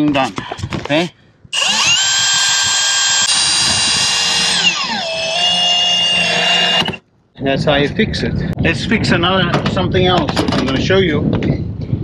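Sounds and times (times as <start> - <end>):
cordless drill whining: 1.6 - 7.0.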